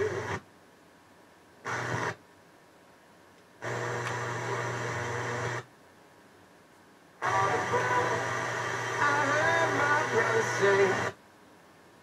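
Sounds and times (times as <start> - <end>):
radio static hiss: 0.0 - 0.5, 1.6 - 2.2, 3.6 - 5.7, 7.1 - 11.3.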